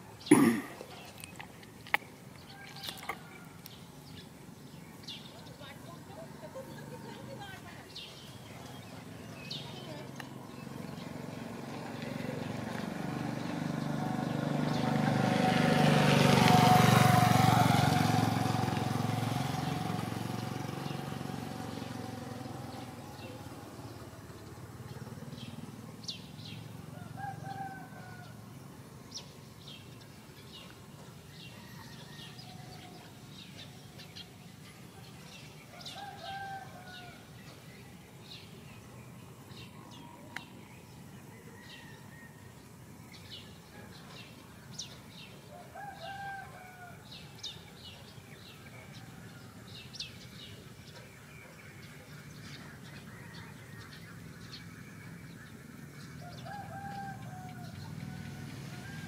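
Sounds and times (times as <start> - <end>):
motorbike passing: 2.0 - 59.0
distant rooster crowing: 2.4 - 3.9, 26.8 - 28.7, 31.2 - 33.3, 35.7 - 37.4, 39.9 - 42.9, 45.4 - 50.0, 52.8 - 54.4, 55.7 - 59.0.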